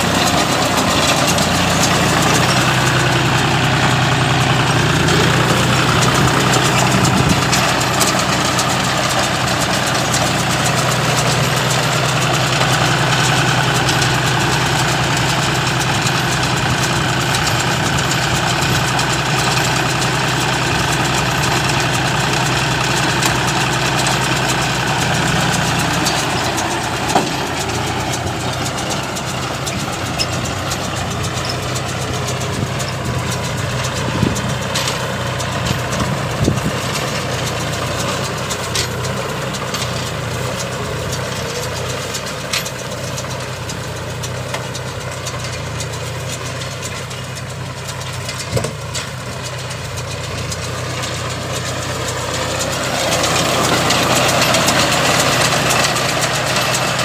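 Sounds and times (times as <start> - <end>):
round baler working: 0.0 - 57.0
tractor diesel engine running: 0.0 - 57.0.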